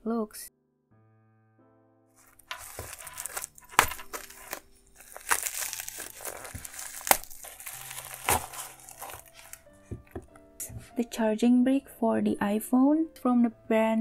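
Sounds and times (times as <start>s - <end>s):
plastic crinkling and rustling: 2.2s - 10.2s
scissors snipping: 2.5s - 9.6s.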